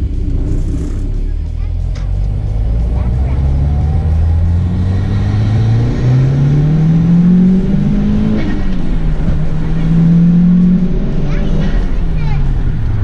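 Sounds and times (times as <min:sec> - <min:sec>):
car engine accelerating in cabin: 0:00.0 - 0:13.0.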